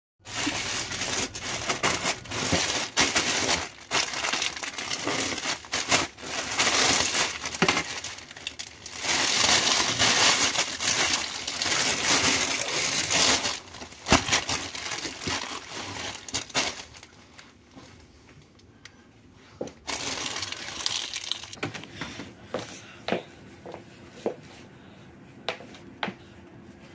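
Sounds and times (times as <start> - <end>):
plastic bag crinkling: 0.2 - 17.6, 19.8 - 21.6.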